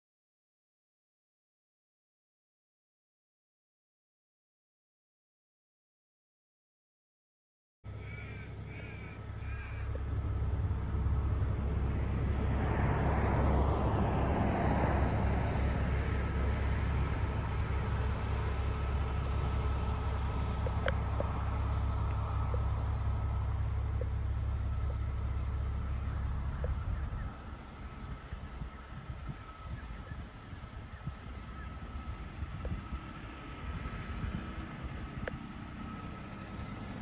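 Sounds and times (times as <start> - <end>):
truck diesel engine idling: 7.9 - 14.2, 15.0 - 37.0
crow cawing: 8.0 - 10.0.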